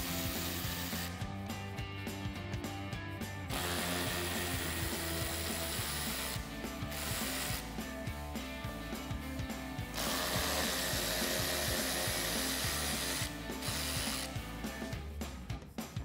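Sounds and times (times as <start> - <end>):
cordless electric ratchet whirring: 3.5 - 7.8, 10.0 - 14.4.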